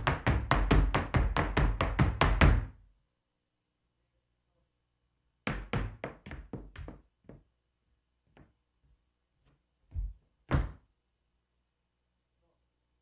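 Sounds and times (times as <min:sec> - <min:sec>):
strong foot stamps: 0:09.9 - 0:10.8.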